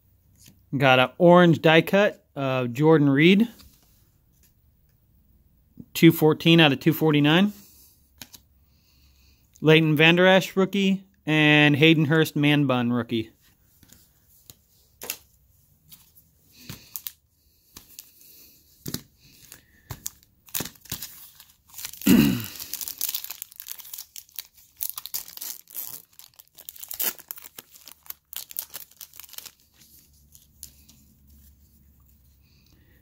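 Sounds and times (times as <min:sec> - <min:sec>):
foil wrapper tearing and crinkling: 0:19.5 - 0:30.9.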